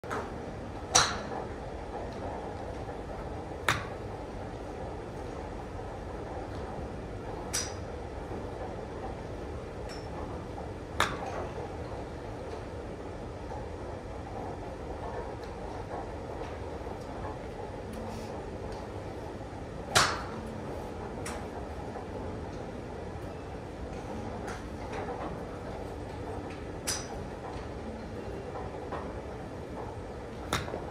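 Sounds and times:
low background noise: 0.0s - 30.9s
golf clubs striking balls: 0.9s - 2.9s, 3.6s - 4.1s, 7.4s - 7.9s, 9.8s - 10.3s, 11.0s - 11.7s, 19.9s - 20.5s, 22.5s - 29.2s, 29.8s - 30.9s.

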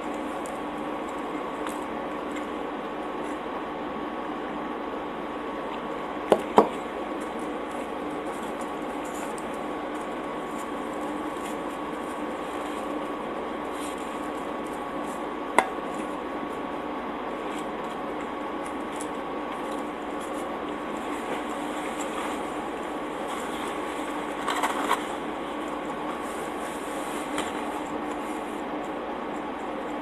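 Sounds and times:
background hum: 0.0s - 30.0s.

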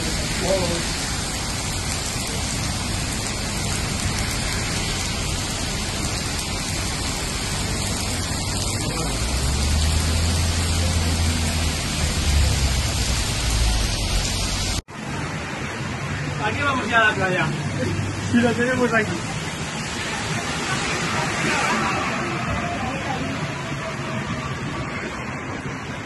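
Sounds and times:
heavy rain on street: 0.0s - 26.0s.

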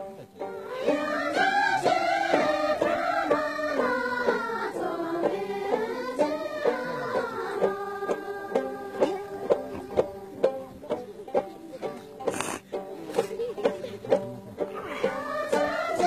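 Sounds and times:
women singing together: 0.4s - 11.0s, 14.8s - 16.0s.

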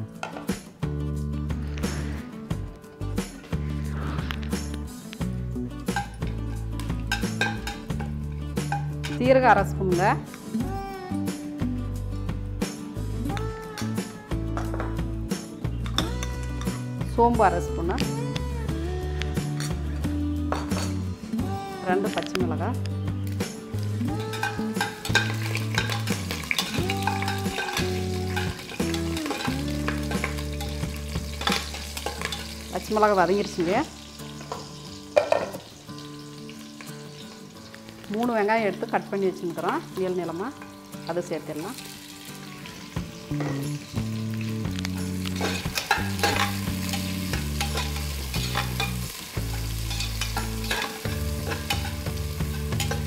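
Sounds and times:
background music: 0.0s - 53.0s
chillies sizzling in oil: 4.0s - 10.6s, 19.3s - 53.0s
metal spoon scraping pot: 24.3s - 30.8s, 45.4s - 49.0s, 49.7s - 53.0s
spatula scraping a metal pot: 49.7s - 53.0s.

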